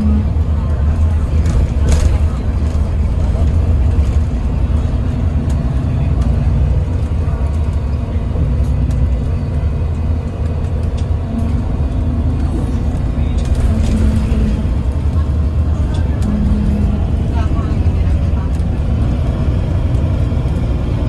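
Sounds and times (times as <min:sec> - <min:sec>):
bus engine and road rumble: 0:00.0 - 0:21.0.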